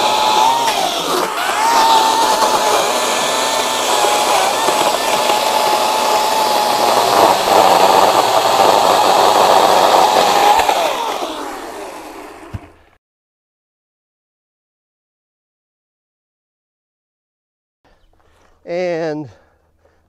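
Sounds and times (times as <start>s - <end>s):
chainsaw cutting log: 0.0s - 13.0s.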